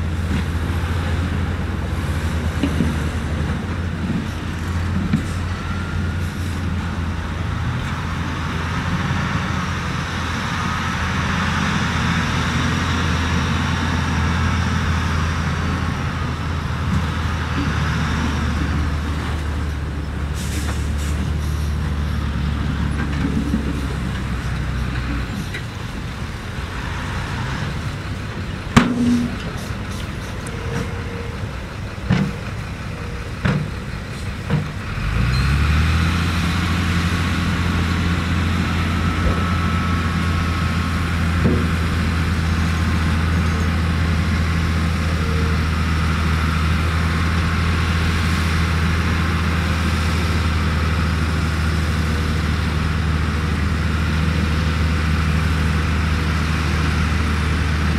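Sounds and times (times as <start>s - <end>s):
diesel engine hum: 0.0s - 57.9s
truck engine revving: 34.8s - 57.9s.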